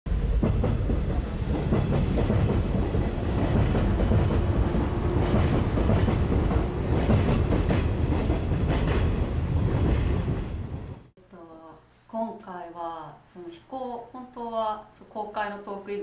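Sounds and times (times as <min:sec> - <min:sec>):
train wheels clattering: 0:00.1 - 0:10.7
train rumbling on rails: 0:00.1 - 0:11.1.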